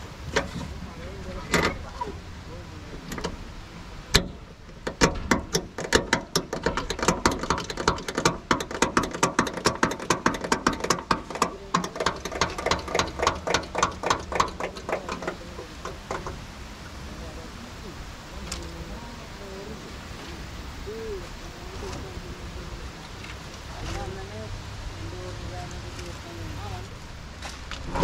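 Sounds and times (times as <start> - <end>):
rapid metallic clicking: 4.1 - 16.5.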